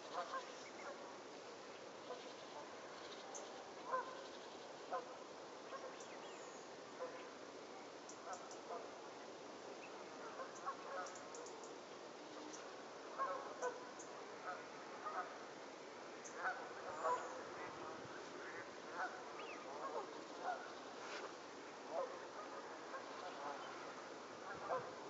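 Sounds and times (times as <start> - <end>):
geese honking: 16.4 - 20.7.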